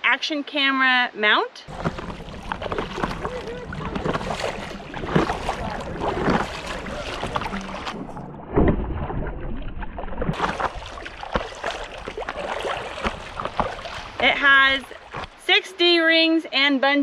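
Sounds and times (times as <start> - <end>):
wind on microphone: 1.7 - 9.0
water splash rushing: 1.7 - 15.4
paddle splashing in water: 1.7 - 15.5.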